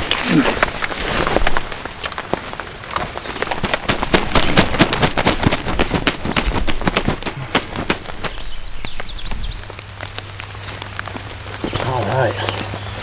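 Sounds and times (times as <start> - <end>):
hurried footsteps: 0.0 - 9.1
rustling in grass: 0.0 - 13.0
turkey wings beating on ground: 0.0 - 13.0.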